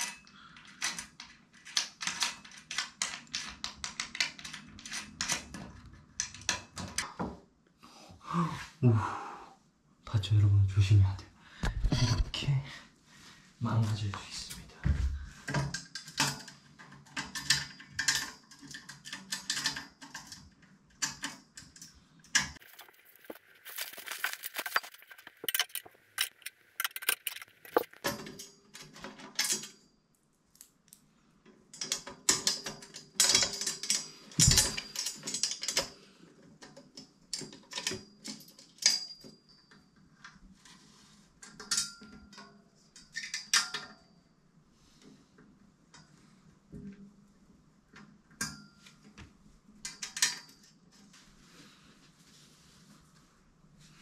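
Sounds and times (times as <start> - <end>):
metal tubes clinking and rattling: 15.4 - 29.9, 31.7 - 36.1, 37.3 - 39.9, 41.4 - 44.2, 49.8 - 51.2.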